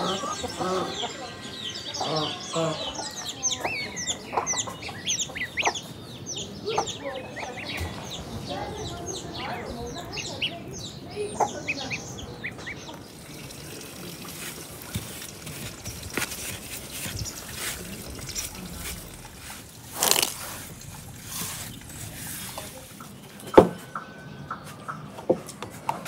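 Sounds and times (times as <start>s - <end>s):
water trickling and splashing: 11.4s - 23.9s.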